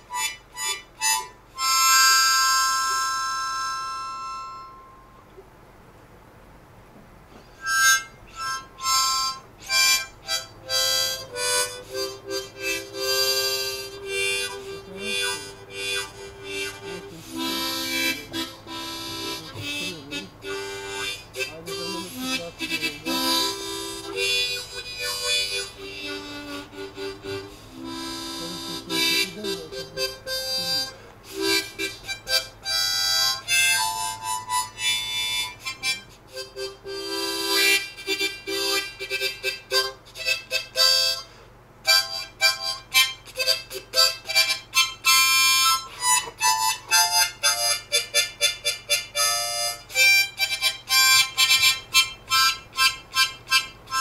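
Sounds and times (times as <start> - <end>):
instrumental background music: 7.6 - 41.2.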